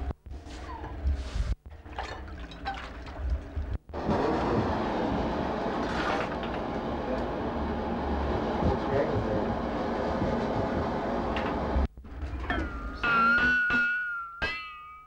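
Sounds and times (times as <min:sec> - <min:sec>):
forge fire rushing and crackling: 0:03.2 - 0:11.8.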